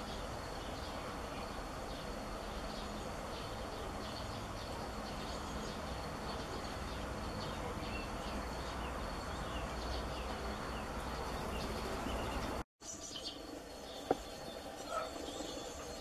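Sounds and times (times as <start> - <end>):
small birds chirping and singing: 0.0 - 16.0.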